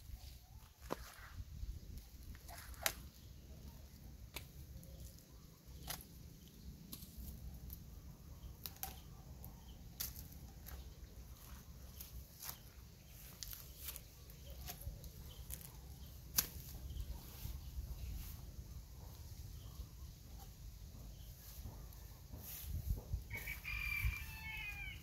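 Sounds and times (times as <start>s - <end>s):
pruning shears snipping: 2.4s - 3.2s, 12.0s - 17.1s.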